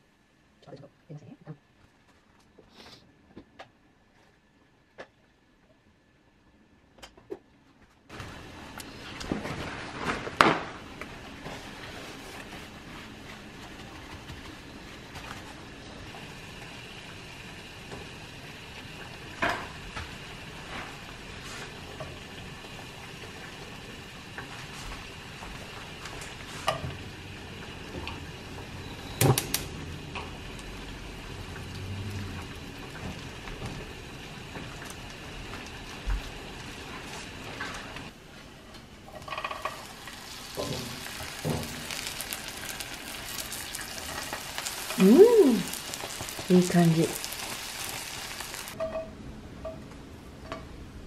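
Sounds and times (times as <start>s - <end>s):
bread sizzling in a frying pan: 8.1s - 38.1s, 39.1s - 48.8s.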